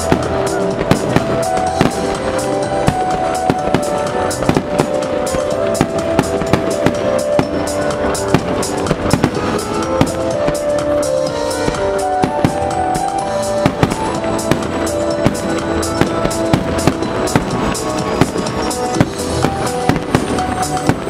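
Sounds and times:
fireworks bursting: 0.0 - 21.0
music with drum beat: 0.0 - 21.0.

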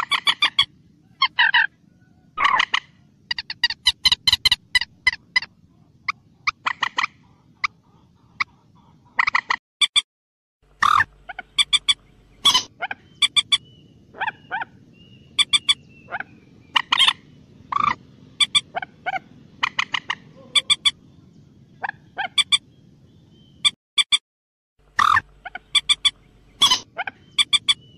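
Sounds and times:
faint low hum: 0.0 - 9.2, 10.7 - 23.6
moorhen clucking calls: 0.0 - 9.6, 10.7 - 21.0, 21.7 - 22.6, 24.8 - 27.9.

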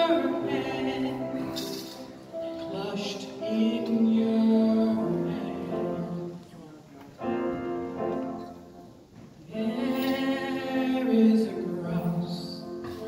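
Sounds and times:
woman singing: 0.0 - 6.4, 9.5 - 13.0
piano accompaniment: 0.0 - 13.0.

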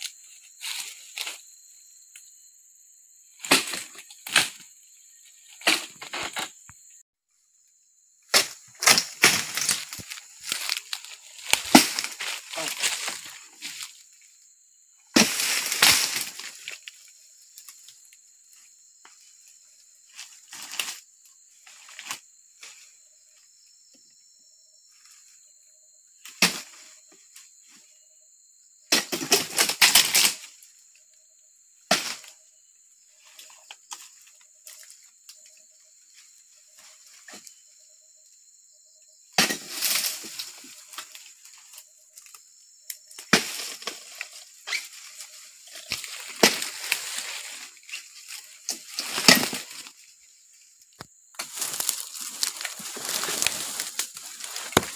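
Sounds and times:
dry fronds cracking and falling: 8.4 - 13.9, 15.2 - 16.9, 43.2 - 50.0, 51.4 - 54.9
chisel jabbing palm fronds: 11.5 - 12.7, 43.2 - 44.9, 45.8 - 47.0.

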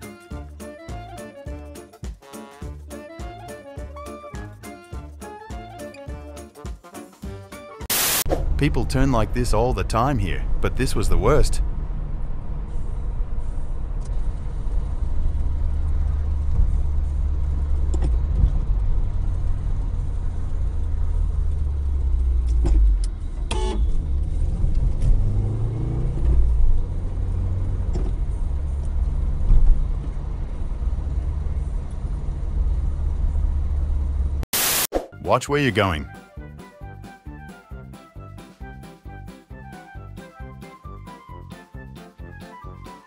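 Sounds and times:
car engine and tyre rumble: 8.3 - 34.4.

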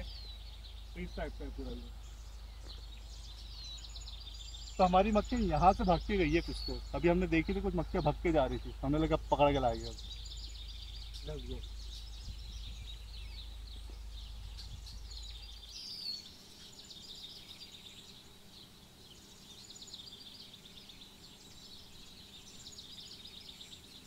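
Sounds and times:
small birds chirping: 0.0 - 24.0
wind rumble on microphone: 9.9 - 15.8.

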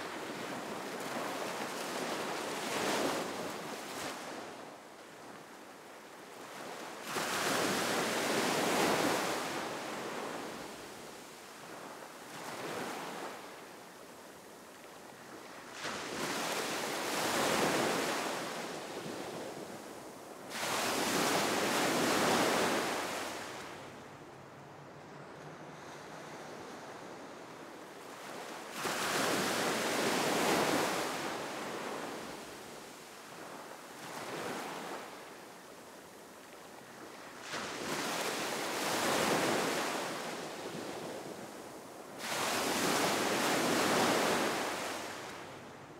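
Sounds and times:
sea waves breaking: 15.1 - 35.9, 36.8 - 45.9.

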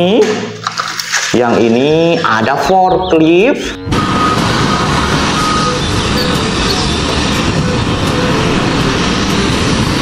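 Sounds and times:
wheel loader engine under load: 3.8 - 10.0.

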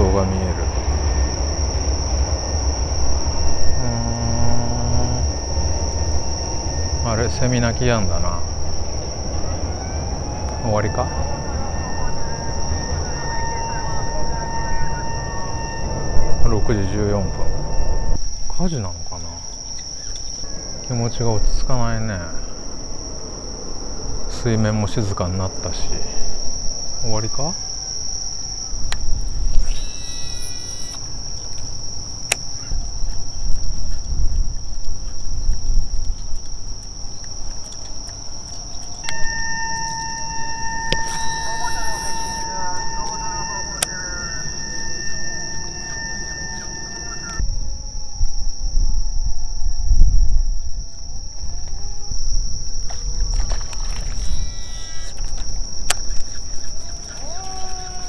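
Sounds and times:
steady siren tone: 0.0 - 18.3, 20.4 - 31.0, 38.5 - 55.4
low rumble: 0.0 - 18.4
insects chirring: 0.0 - 58.0.

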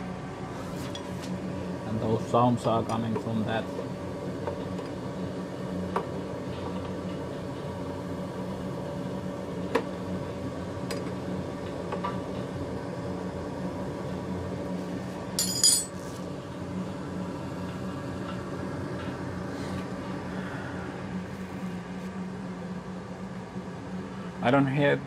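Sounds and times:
oil burner humming: 0.0 - 25.0
metallic clinking: 15.4 - 16.0.

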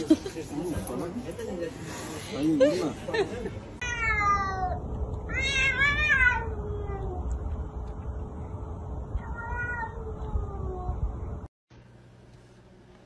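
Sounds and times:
cats yowling: 3.8 - 7.4, 9.2 - 11.0.

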